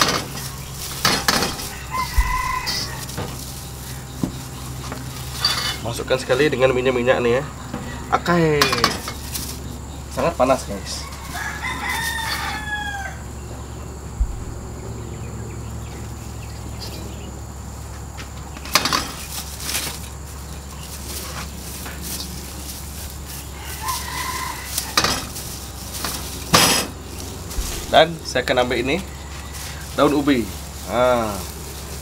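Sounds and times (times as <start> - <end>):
rooster crowing: 0.0 - 5.2, 7.1 - 16.5, 21.4 - 32.0.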